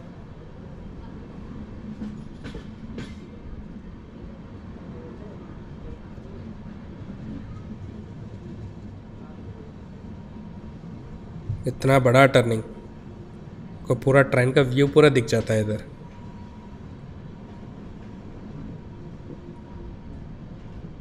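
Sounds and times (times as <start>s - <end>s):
train wheels rumbling: 1.3s - 4.0s.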